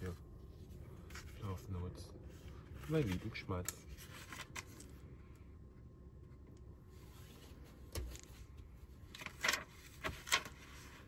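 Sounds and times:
paper rustling: 2.5 - 5.0, 9.1 - 11.0.

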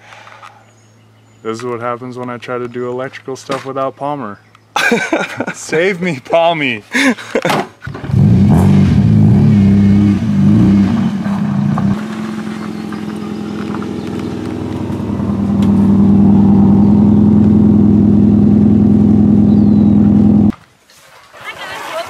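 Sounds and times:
car engine revving: 7.9 - 20.5.

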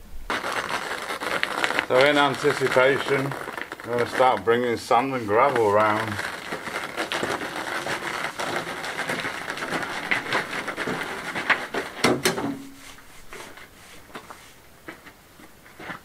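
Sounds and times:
wheelbarrow rattling over gravel: 0.3 - 12.7
wheelbarrow knocks: 12.0 - 12.8.

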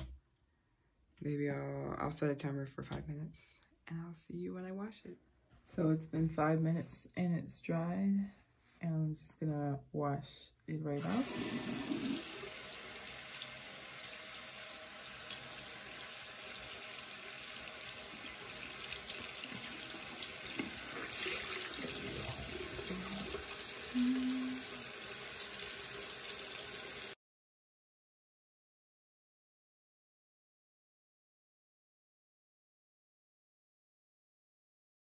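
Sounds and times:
water running from tap: 11.0 - 27.2.

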